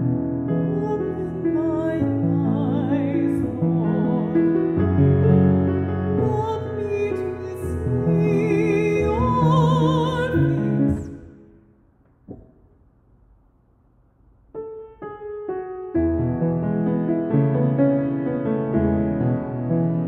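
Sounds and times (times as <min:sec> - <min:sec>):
grand piano: 0:00.0 - 0:13.4, 0:14.1 - 0:20.0
woman singing with vibrato: 0:06.2 - 0:11.4.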